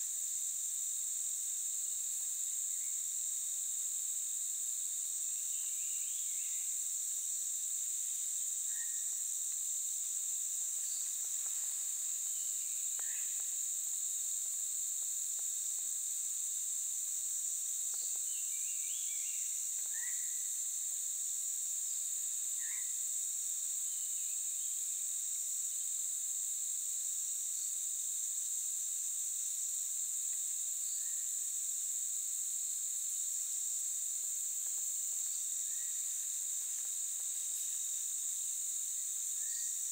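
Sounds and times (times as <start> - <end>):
insect chorus droning: 0.0 - 39.9.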